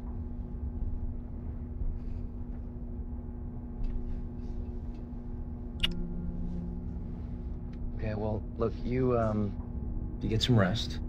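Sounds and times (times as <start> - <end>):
faint rumble: 0.0 - 11.0
low hum of held tones: 0.0 - 11.0
sharp click: 5.8 - 6.0.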